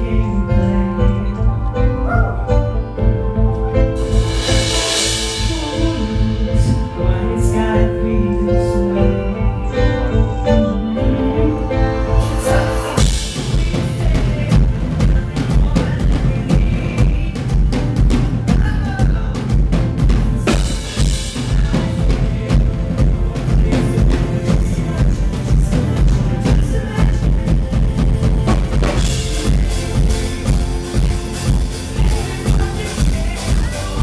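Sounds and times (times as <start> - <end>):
heavy bass: 0.0 - 34.0
live band playing pop: 0.0 - 34.0.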